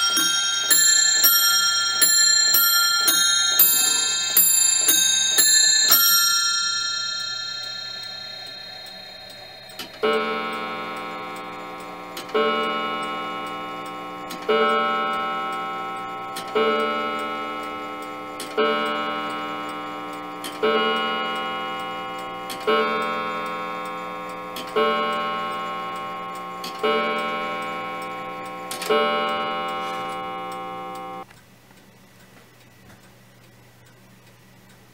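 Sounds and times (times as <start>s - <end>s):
clock bells chiming: 0.0s - 31.2s
clock ticking: 0.0s - 31.4s
deep clock gong strokes: 7.6s - 31.2s.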